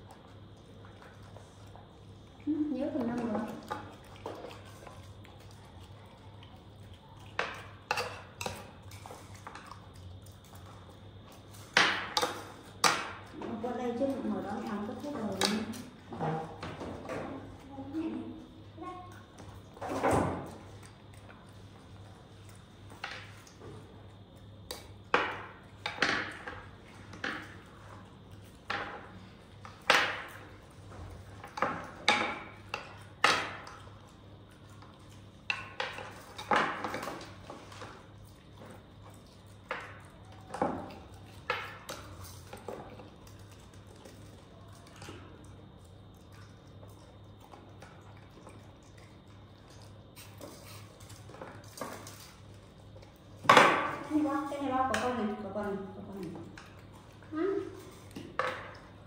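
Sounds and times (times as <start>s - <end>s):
faint low hum: 0.0s - 33.0s.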